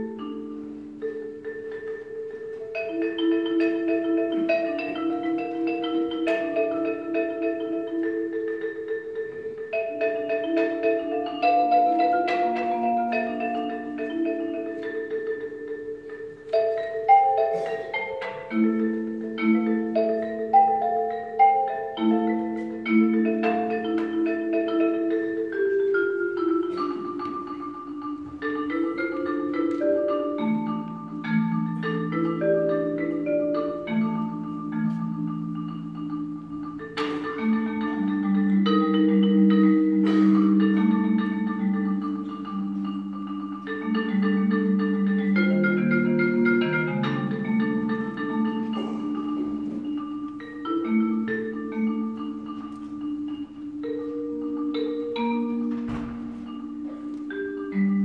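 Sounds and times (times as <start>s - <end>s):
four-mallet keyboard percussion solo: 0.0s - 58.0s.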